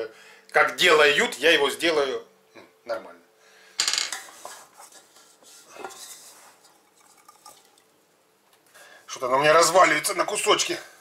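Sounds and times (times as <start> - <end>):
steel bowl clattering and scraping: 4.1 - 7.8.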